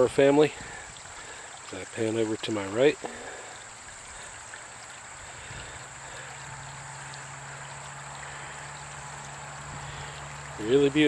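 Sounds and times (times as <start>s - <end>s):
flowing stream: 0.0s - 11.0s
low steady hum: 3.1s - 11.0s.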